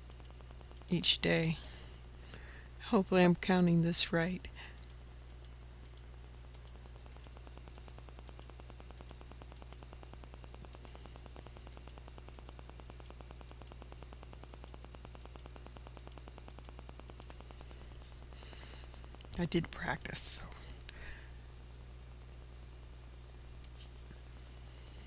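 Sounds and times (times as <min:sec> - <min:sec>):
computer mouse clicks: 0:00.0 - 0:01.0, 0:04.8 - 0:10.0, 0:10.6 - 0:11.0, 0:11.6 - 0:13.8, 0:14.4 - 0:17.5
low electrical hum: 0:00.0 - 0:25.0.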